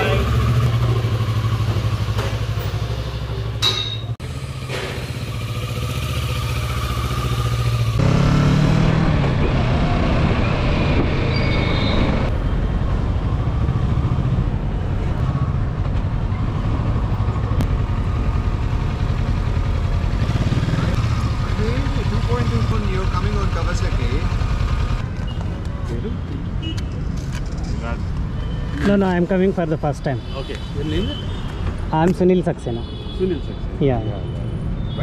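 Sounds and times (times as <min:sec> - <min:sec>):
motorcycle engine riding: 0:00.0 - 0:11.2, 0:13.1 - 0:25.6
wind and road noise: 0:00.0 - 0:35.0.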